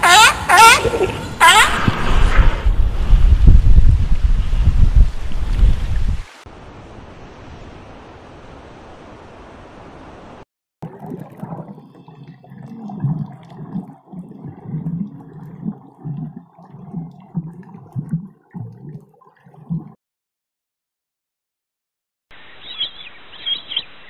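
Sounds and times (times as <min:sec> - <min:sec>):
wind: 0:00.0 - 0:10.4, 0:22.3 - 0:24.0
underwater gurgling and bubbling: 0:10.8 - 0:20.0.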